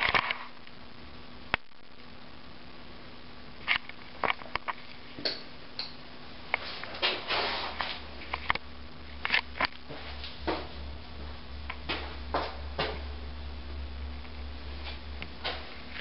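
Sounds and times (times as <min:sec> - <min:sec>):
steady low hum: 0:00.0 - 0:16.0
footsteps and knocks in small room: 0:03.7 - 0:16.0
rustling scrape: 0:06.6 - 0:08.4.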